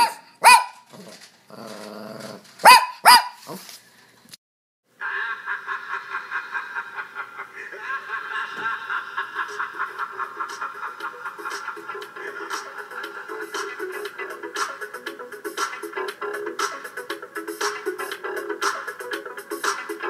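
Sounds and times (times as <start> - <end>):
small dog barking: 0.0 - 0.9, 2.6 - 3.6
dog growling: 0.9 - 2.6
music with steady pulse: 9.5 - 20.0.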